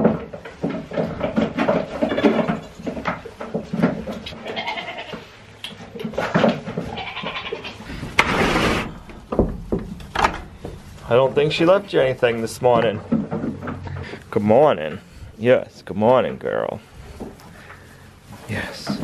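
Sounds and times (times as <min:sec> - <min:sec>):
hooves knocking on wood: 0:00.0 - 0:08.4, 0:09.0 - 0:19.0
goats bleating: 0:04.3 - 0:05.3, 0:06.8 - 0:08.0.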